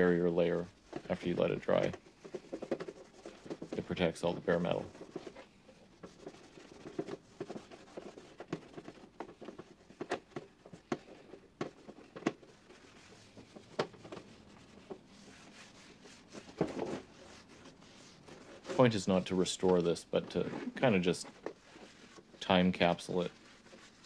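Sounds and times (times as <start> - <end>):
rag rubbing on metal: 12.6 - 19.0.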